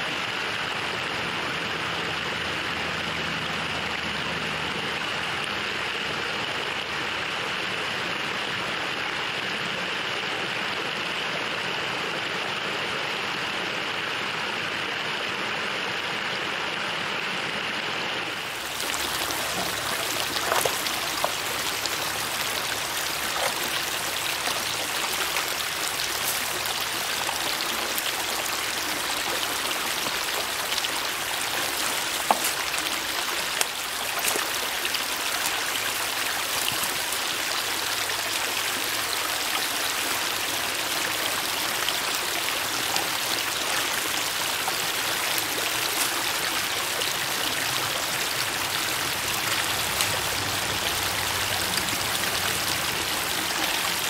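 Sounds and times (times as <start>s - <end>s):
stream flowing from culvert: 0.0s - 54.0s
water rushing over rock ledge: 18.3s - 54.0s
pole knocking and splashing: 19.0s - 25.4s, 31.4s - 33.0s.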